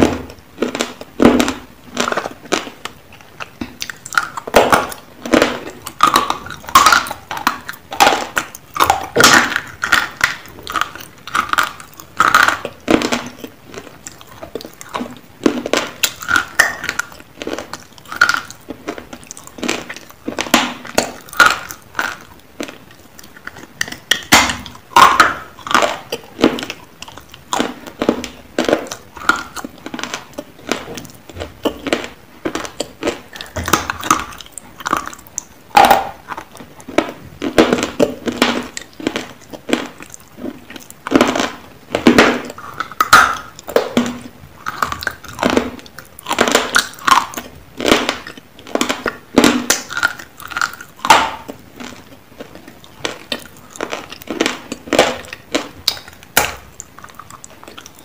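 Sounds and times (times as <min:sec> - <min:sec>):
crunching hard chalky chunks: 0:00.0 - 0:58.0.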